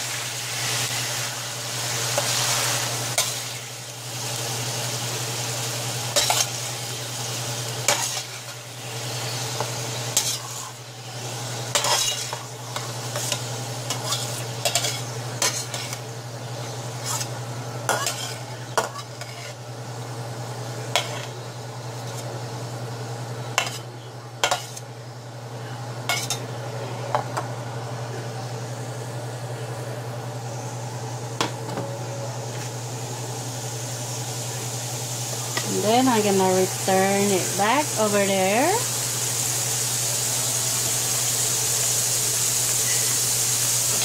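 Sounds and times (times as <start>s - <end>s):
steady low hum: 0.0s - 40.6s
oil sizzling: 0.0s - 44.0s
metal spatula scraping a pan: 10.2s - 10.8s, 11.7s - 16.0s, 17.0s - 17.3s, 17.9s - 19.6s.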